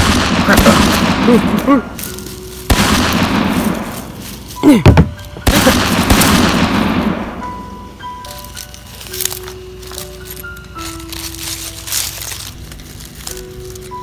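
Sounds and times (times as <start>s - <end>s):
gunshots with echoing tail: 0.0s - 1.8s, 2.7s - 4.2s, 5.4s - 7.4s.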